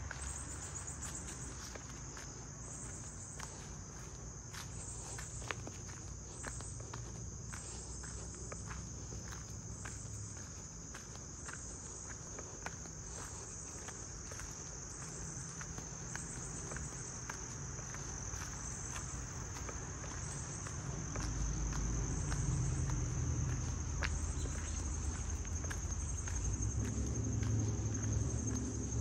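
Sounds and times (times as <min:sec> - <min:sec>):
footsteps on gravel: 0:00.0 - 0:29.0
insects chirring: 0:00.0 - 0:29.0.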